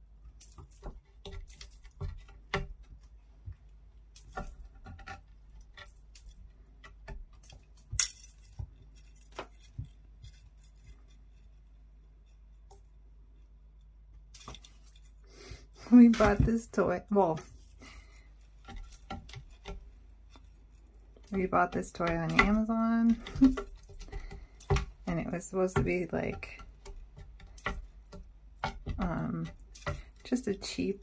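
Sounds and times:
small bell jingling: 14.4s - 26.6s.

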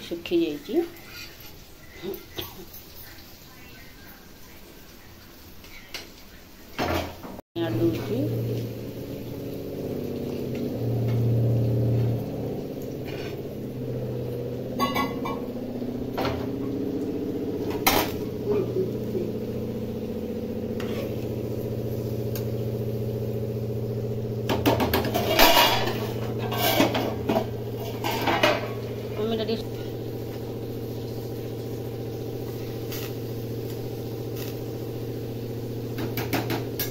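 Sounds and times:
steady low hum: 7.6s - 36.9s
metal spoon scraping metal pan: 13.0s - 13.5s, 14.8s - 15.5s, 20.8s - 21.3s, 24.9s - 28.6s.

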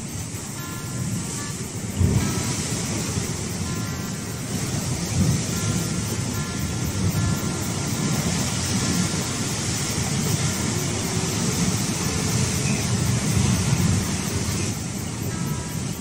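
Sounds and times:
sea surf breaking on rocks: 0.0s - 16.0s.

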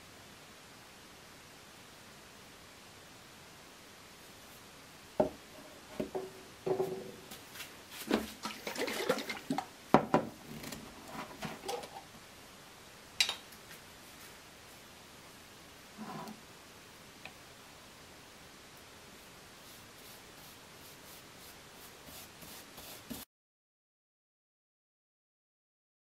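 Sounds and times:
objects knocking on workbench: 5.2s - 7.1s, 9.9s - 10.4s
liquid sloshing in jar: 8.1s - 9.7s.

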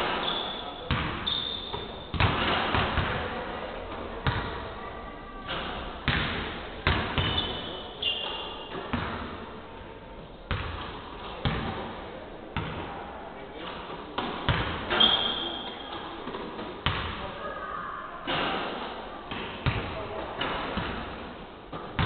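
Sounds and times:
basketballs thudding on gym floor: 0.9s - 3.4s, 4.2s - 4.6s, 5.5s - 7.6s, 8.2s - 9.4s, 10.5s - 11.9s, 14.2s - 15.4s, 16.3s - 17.2s, 19.3s - 22.0s.

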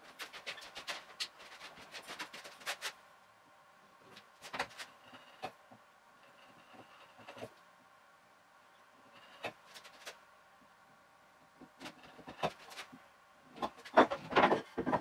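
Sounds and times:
chisel scraping wood: 6.2s - 7.6s, 9.0s - 10.0s, 11.8s - 12.9s.

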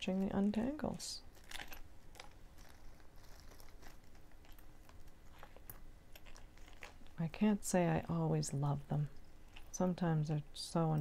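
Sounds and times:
necklace chains clicking and rustling: 0.1s - 7.2s.

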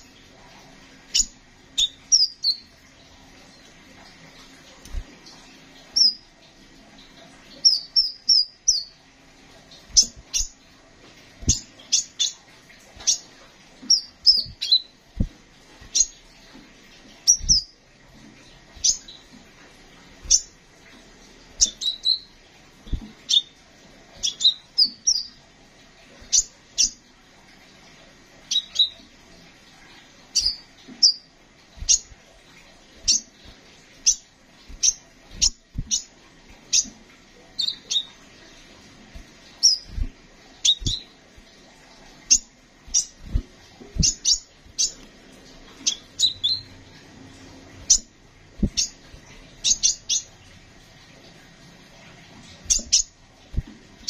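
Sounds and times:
bird chirping: 1.1s - 2.7s, 6.0s - 6.2s, 7.5s - 9.0s, 13.0s - 14.9s, 17.2s - 17.8s, 18.8s - 19.3s, 21.6s - 22.3s, 24.2s - 25.4s, 28.5s - 29.0s, 30.3s - 32.1s, 34.0s - 36.1s, 37.6s - 38.2s, 39.6s - 41.1s, 42.3s - 43.3s, 44.0s - 45.0s, 45.8s - 46.7s, 47.9s - 49.0s, 49.6s - 50.3s, 52.7s - 53.1s.

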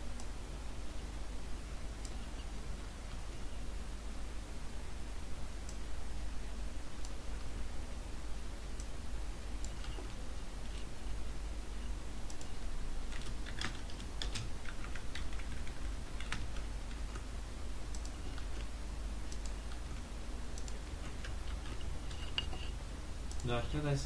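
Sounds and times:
steady low hum: 0.0s - 24.0s
keyboard typing: 9.6s - 10.2s, 12.3s - 17.3s, 17.9s - 18.7s, 19.3s - 22.7s.

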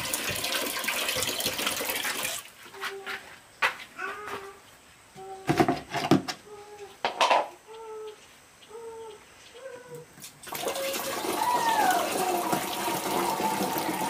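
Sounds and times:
water splashing into tank: 0.0s - 2.5s, 10.3s - 14.0s.

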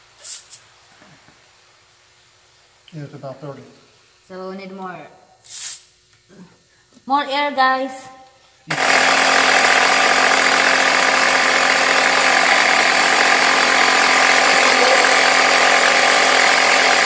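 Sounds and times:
air compressor running: 0.0s - 2.8s, 8.4s - 17.0s.

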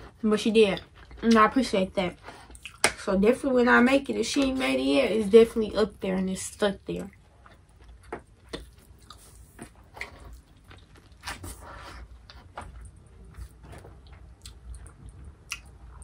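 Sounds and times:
person chewing and smacking: 0.0s - 1.5s, 2.2s - 3.0s, 7.0s - 16.0s.

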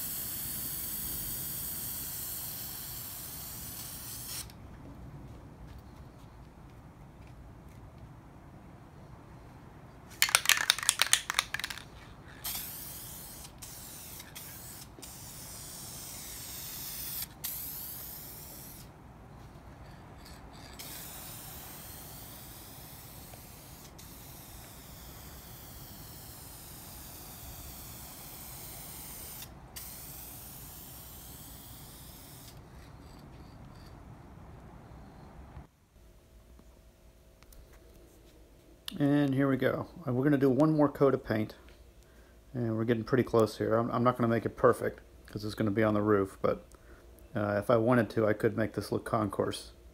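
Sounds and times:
spray can rattling: 0.0s - 4.5s, 10.1s - 18.9s, 19.8s - 33.2s
spray paint hissing: 0.0s - 4.6s, 10.2s - 34.0s.

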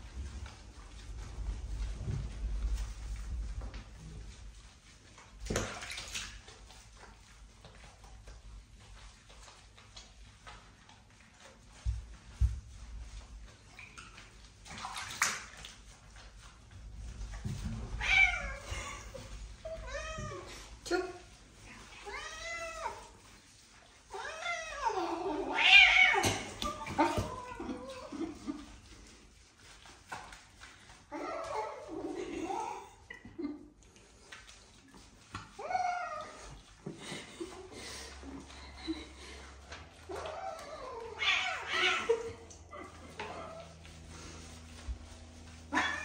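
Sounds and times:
bathwater splashing and sloshing: 0.0s - 46.0s
cat yowling: 45.7s - 46.0s.

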